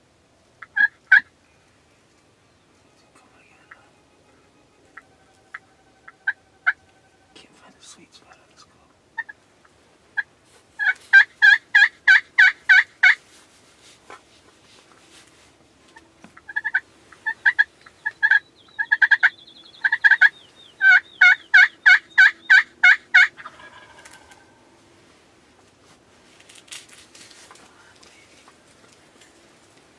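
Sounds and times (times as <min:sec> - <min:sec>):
turkey yelping: 0:00.6 - 0:01.3, 0:04.4 - 0:07.2, 0:10.2 - 0:13.2, 0:15.9 - 0:24.8.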